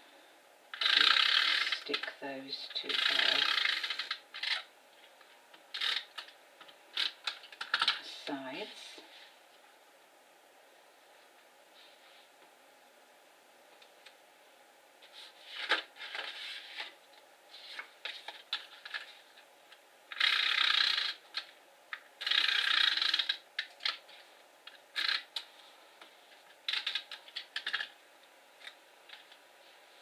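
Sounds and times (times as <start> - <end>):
paper scraping strokes: 15.0 - 18.4.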